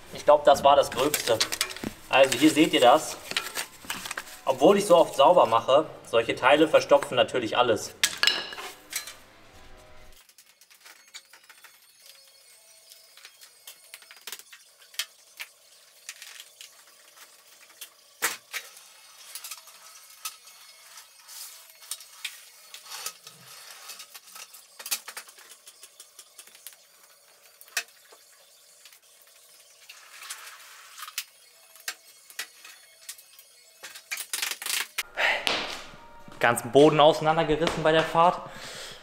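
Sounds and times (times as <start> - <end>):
small hard objects clattering: 0.1 - 5.2.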